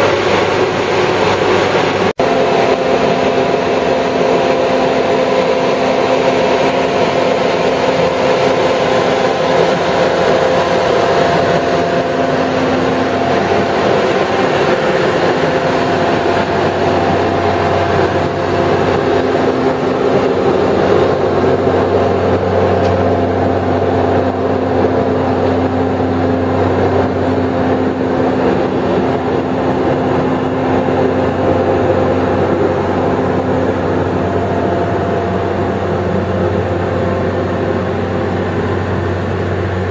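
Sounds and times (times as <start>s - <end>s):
machine engine droning: 0.0s - 39.9s.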